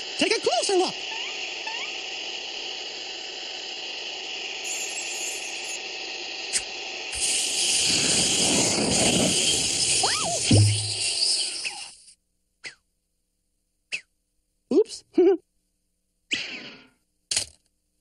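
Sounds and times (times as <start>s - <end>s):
vacuum cleaner whir: 0.0s - 11.9s
rushing suction noise: 7.1s - 11.6s.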